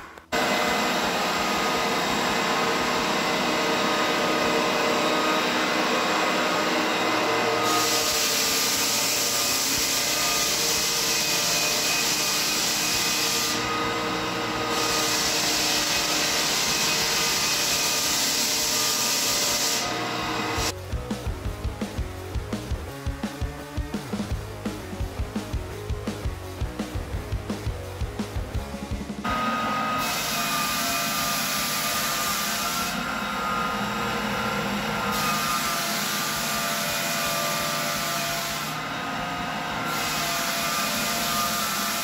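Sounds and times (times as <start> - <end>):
floor sander motor humming: 0.0 - 20.8, 29.2 - 42.0
sanding hiss on wood: 7.6 - 13.7, 14.6 - 20.7, 30.0 - 33.0, 39.8 - 42.0.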